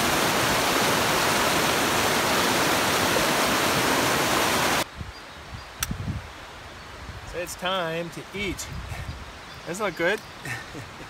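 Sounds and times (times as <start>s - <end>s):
creek water rushing over rocks: 0.0s - 4.9s.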